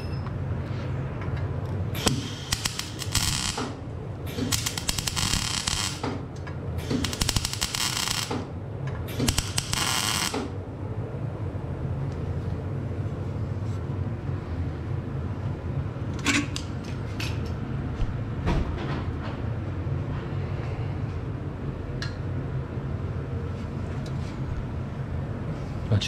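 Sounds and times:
steady low hum: 0:00.0 - 0:26.0
arc welding crackling: 0:02.0 - 0:08.5, 0:09.1 - 0:10.6.

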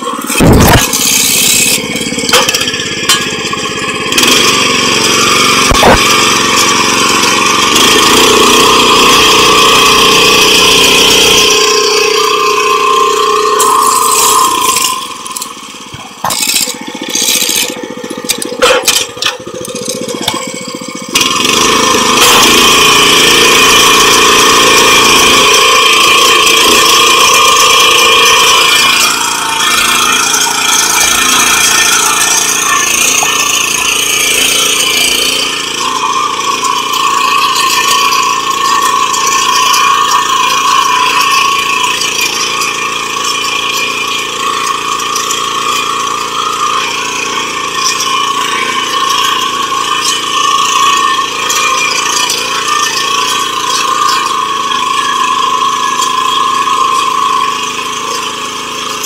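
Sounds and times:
mechanical rattle: 0:00.0 - 0:23.4
rotary tiller engine running: 0:00.0 - 0:59.0.

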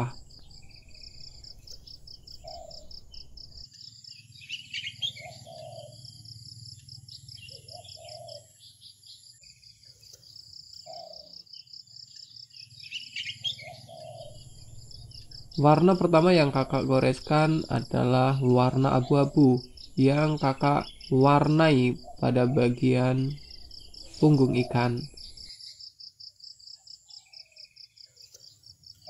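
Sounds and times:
bird chirps: 0:00.0 - 0:29.0
crickets trilling: 0:00.0 - 0:29.0
faint low hum: 0:14.0 - 0:25.5.

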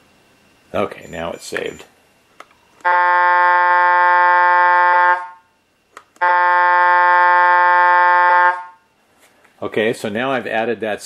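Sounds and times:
truck air horn blasts: 0:02.8 - 0:05.5, 0:06.2 - 0:08.9.

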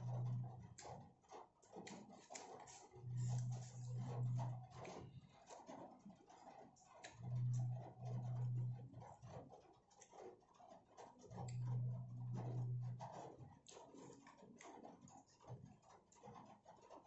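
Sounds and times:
low steady hum: 0:00.0 - 0:01.0, 0:01.8 - 0:05.4, 0:07.0 - 0:09.3, 0:11.3 - 0:14.2
plastic cutlery clicking and scraping: 0:01.8 - 0:04.0.

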